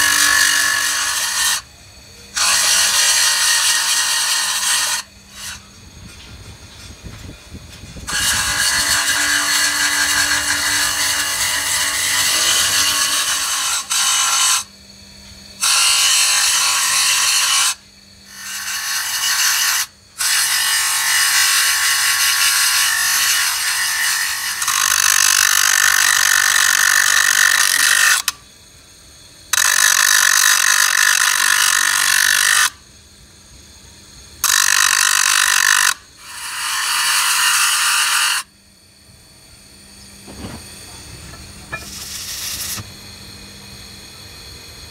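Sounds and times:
hissing grinding of metal: 0.0s - 14.7s, 34.4s - 38.5s, 39.9s - 43.0s
grinder motor humming: 6.6s - 14.8s, 39.5s - 44.2s.

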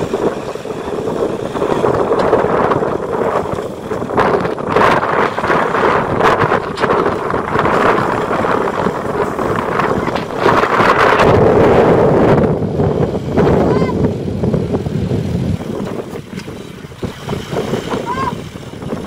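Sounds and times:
wind noise on microphone: 0.0s - 19.0s.

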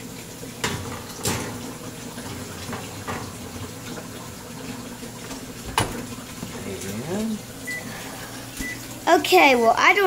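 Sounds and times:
metal pan clanking on oven rack: 0.6s - 3.5s.

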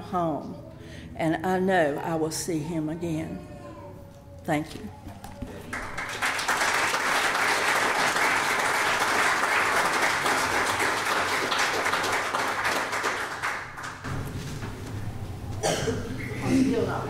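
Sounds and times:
congregation applauding: 5.6s - 14.1s.

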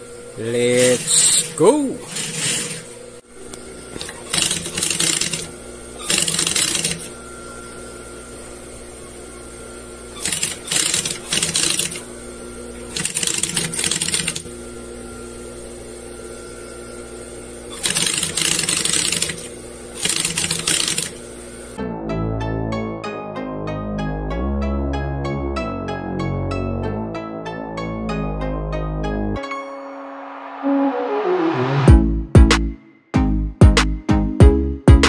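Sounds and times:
motor humming: 0.0s - 21.8s
sewing machine stitching: 2.0s - 2.9s, 4.0s - 7.1s, 10.2s - 12.0s, 12.9s - 14.4s, 17.7s - 21.2s.

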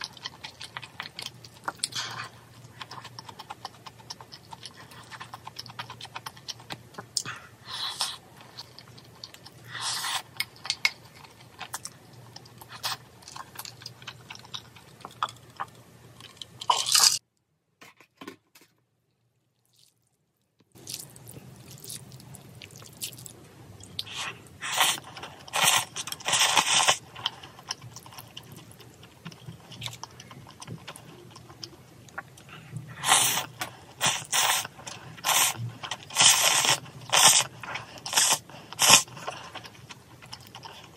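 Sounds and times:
chewing and smacking: 0.0s - 7.3s, 8.4s - 16.9s, 20.7s - 24.2s, 24.8s - 32.8s, 33.4s - 40.9s
noodles being slurped: 24.0s - 28.2s, 33.0s - 39.7s.

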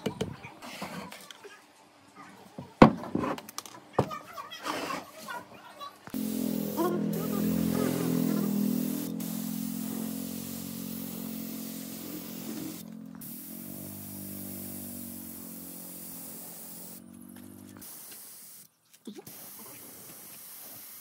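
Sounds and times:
spray gun hissing: 6.2s - 17.1s, 17.7s - 18.7s, 19.3s - 21.0s.

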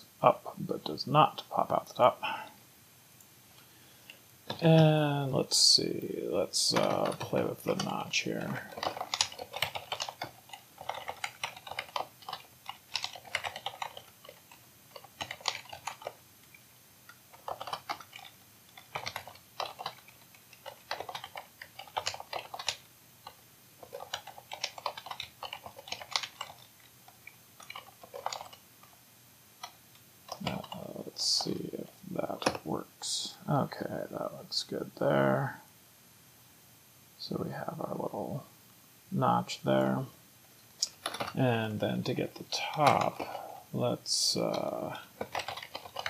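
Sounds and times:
typing on computer keyboard: 6.7s - 28.6s, 29.6s - 31.7s, 40.8s - 41.5s, 44.5s - 46.0s.

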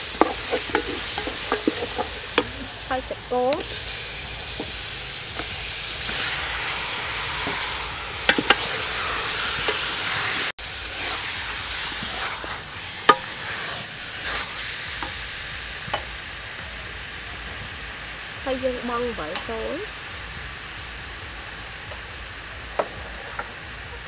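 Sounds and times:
wooden spoon stirring: 0.0s - 6.2s
meat sizzling in hot oil: 0.0s - 24.0s.

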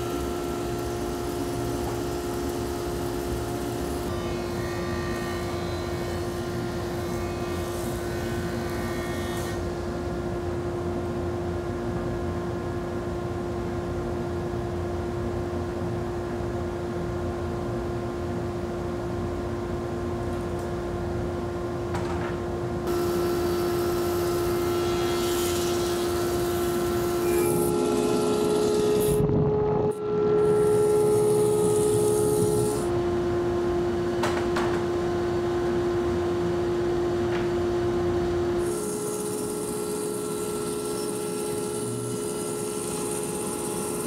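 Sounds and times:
jointer cutting boards: 0.0s - 9.7s, 22.9s - 33.0s, 38.4s - 44.0s
woodworking machine motor drone: 0.0s - 9.8s, 22.9s - 44.0s
planer running: 22.9s - 33.0s.

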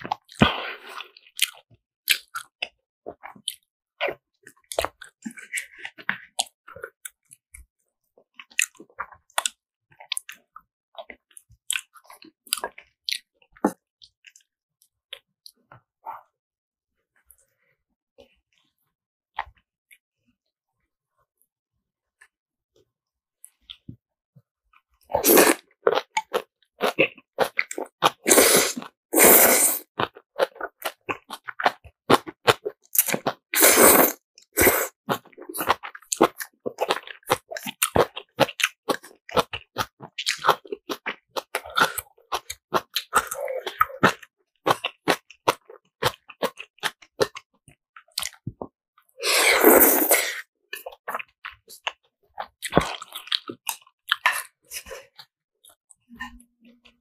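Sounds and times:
wet chewing clicks: 0.1s - 7.7s, 8.3s - 14.5s, 25.4s - 48.7s, 50.0s - 57.0s
slurping noodles: 25.1s - 39.8s, 40.5s - 47.4s, 49.2s - 51.4s.

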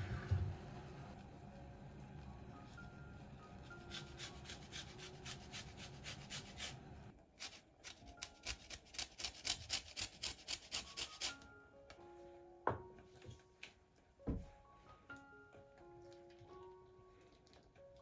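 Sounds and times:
lemon peel scraped on grater: 3.8s - 6.8s.

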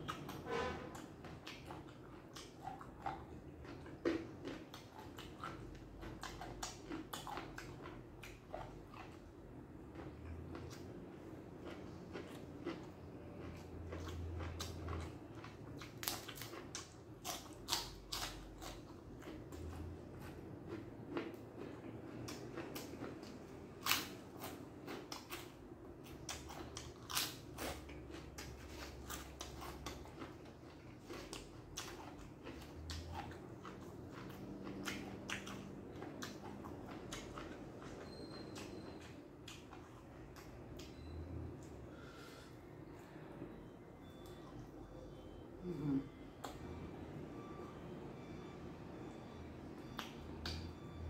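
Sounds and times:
person chewing crunchy food: 0.0s - 42.6s.

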